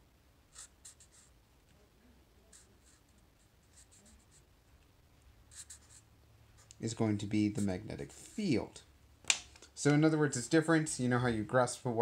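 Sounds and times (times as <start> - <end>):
marker strokes on paper: 0.5 - 1.4, 2.4 - 4.5, 5.5 - 8.7.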